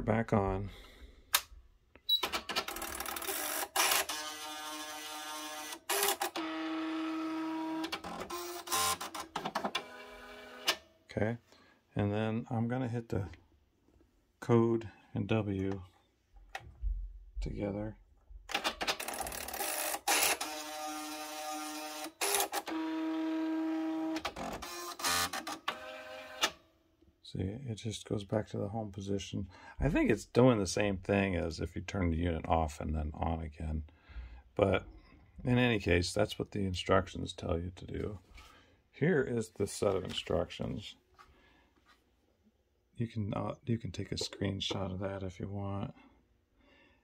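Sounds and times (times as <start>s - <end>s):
typewriter motors whirring: 2.2s - 10.8s, 18.5s - 26.6s.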